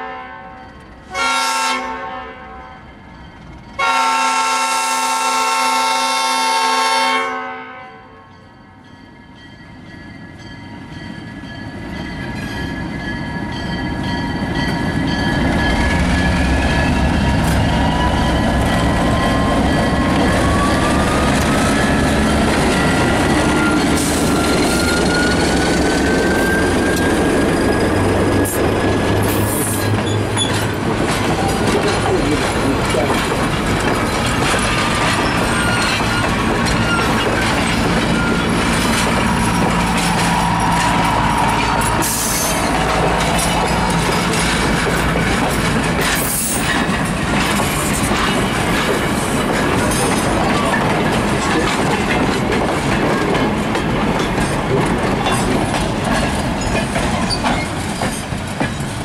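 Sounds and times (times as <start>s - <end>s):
diesel locomotive passing: 0.0s - 59.0s
train wheels clattering on rail joints: 10.3s - 59.0s
high wheel squeal: 14.1s - 30.7s, 34.4s - 45.0s.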